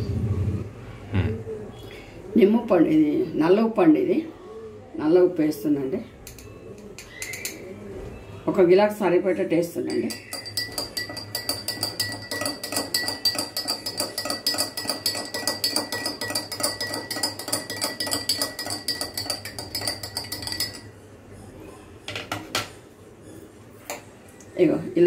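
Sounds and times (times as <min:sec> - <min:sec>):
spoon clinking in a glass: 0:06.2 - 0:07.6, 0:09.8 - 0:20.9.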